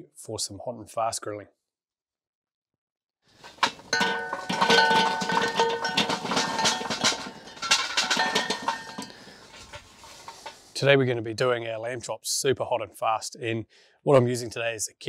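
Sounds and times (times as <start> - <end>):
coals clattering onto metal: 3.4 - 10.7.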